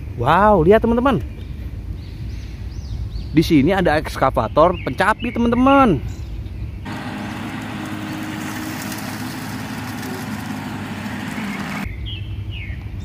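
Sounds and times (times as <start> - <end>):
excavator diesel engine running: 6.9 - 11.9.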